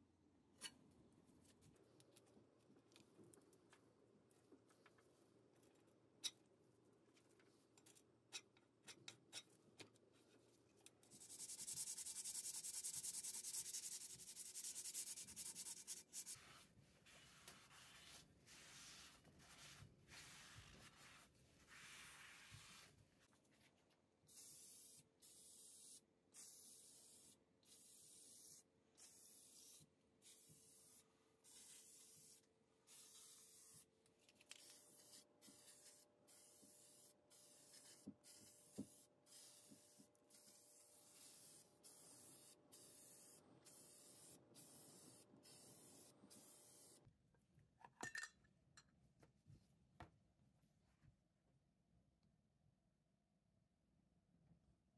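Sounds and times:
spray paint bursts: 0:24.3 - 0:33.9, 0:34.6 - 0:47.0.

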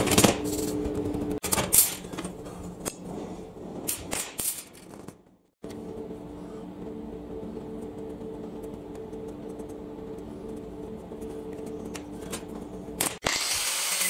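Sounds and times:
low workshop hum: 0:00.0 - 0:14.0.

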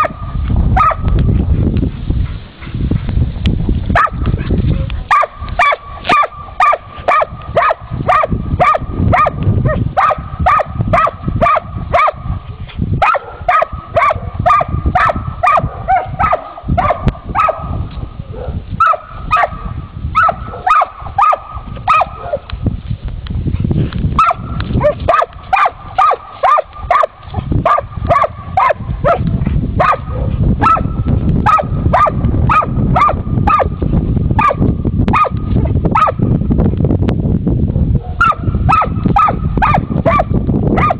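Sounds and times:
dog barking: 0:00.0 - 0:00.2, 0:00.8 - 0:01.1, 0:04.0 - 0:04.2, 0:05.1 - 0:12.2, 0:13.0 - 0:19.6, 0:20.2 - 0:22.5, 0:24.2 - 0:29.2, 0:29.8 - 0:33.7, 0:34.4 - 0:36.2, 0:37.8 - 0:40.9
low rumble: 0:00.0 - 0:40.9.

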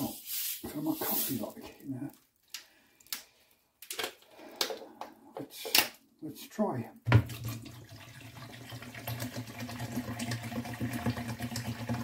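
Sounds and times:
water pouring into kettle: 0:07.1 - 0:12.0.

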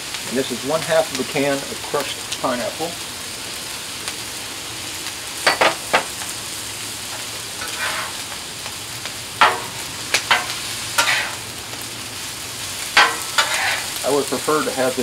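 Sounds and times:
rice sizzling on griddle: 0:00.0 - 0:15.0
metal scraper clacking on griddle: 0:07.6 - 0:08.2, 0:09.4 - 0:11.4, 0:13.0 - 0:14.0.

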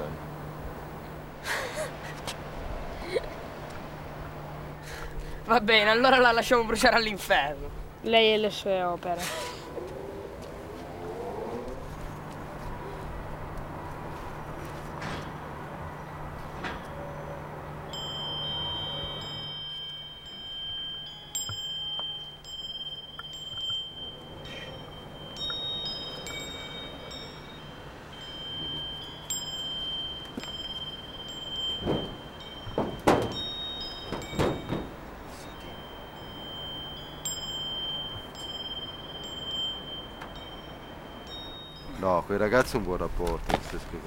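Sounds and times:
high chime tones: 0:17.9 - 0:42.3.

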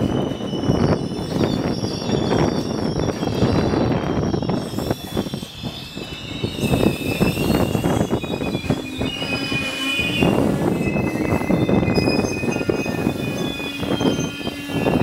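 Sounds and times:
train cars rumbling on rails: 0:00.0 - 0:15.0
train wheels squealing: 0:00.0 - 0:15.0.

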